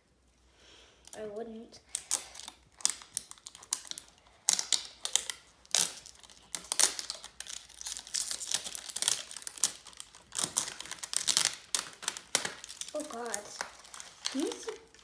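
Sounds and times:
wrapping crinkling and tearing: 0:01.8 - 0:15.0.

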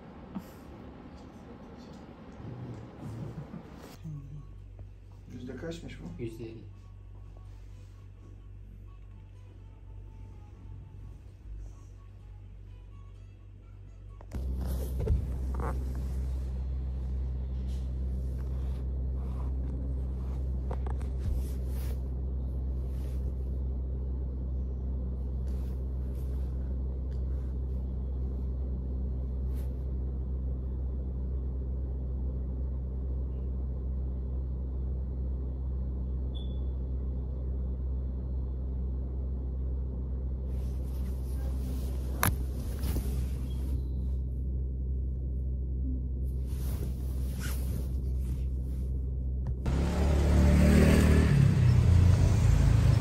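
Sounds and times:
low droning hum: 0:00.0 - 0:49.8
phone rustling against fabric: 0:18.2 - 0:22.1, 0:40.5 - 0:44.0, 0:46.3 - 0:49.0.

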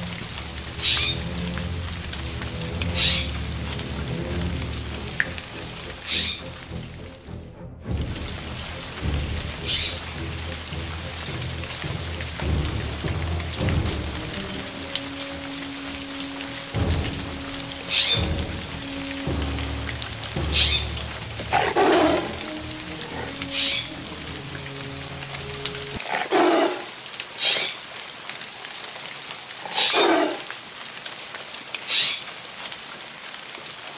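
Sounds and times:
held low musical tone: 0:00.0 - 0:26.0
steady rain falling: 0:00.0 - 0:33.9.

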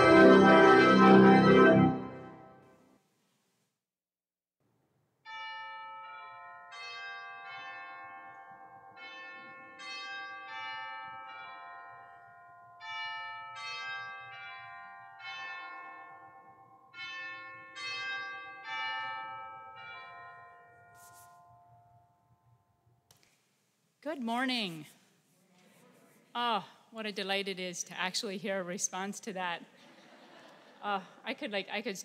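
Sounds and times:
bells chiming: 0:05.3 - 0:22.1.

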